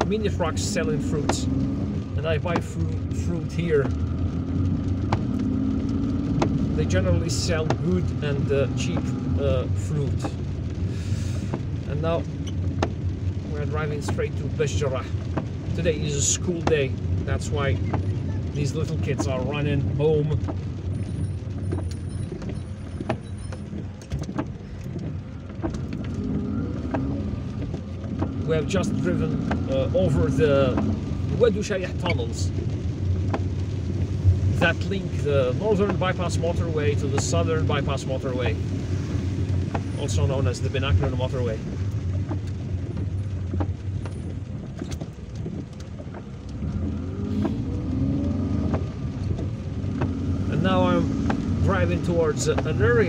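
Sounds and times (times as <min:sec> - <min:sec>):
car engine and tyre rumble: 0:00.0 - 0:53.0
light ticks: 0:03.8 - 0:09.2, 0:10.0 - 0:53.0
light taps: 0:04.9 - 0:05.5, 0:07.4 - 0:07.9, 0:52.4 - 0:52.8.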